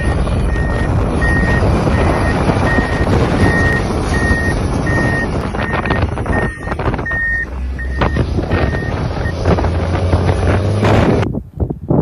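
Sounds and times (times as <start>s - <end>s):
back-up alarm beeping: 0.0s - 9.5s
engine rumble: 0.0s - 12.0s
wind on microphone: 0.0s - 12.0s.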